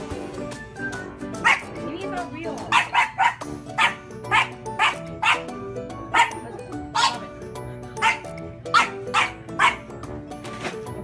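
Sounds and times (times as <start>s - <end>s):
background music: 0.0s - 11.0s
puppy barking: 1.4s - 1.8s, 2.7s - 7.4s, 8.0s - 10.0s.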